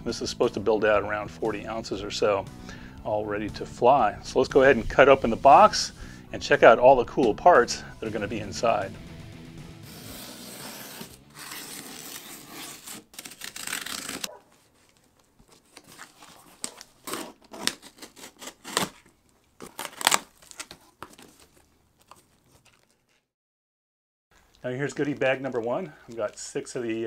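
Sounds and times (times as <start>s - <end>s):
utility knife slicing tape and cardboard: 9.8s - 14.4s, 15.7s - 20.7s
packing materials crinkling and rustling: 11.3s - 23.3s.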